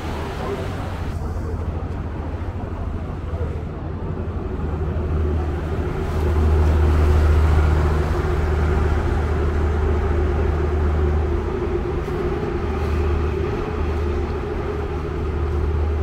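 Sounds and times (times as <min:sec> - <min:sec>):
boat engine droning: 0:00.0 - 0:16.0.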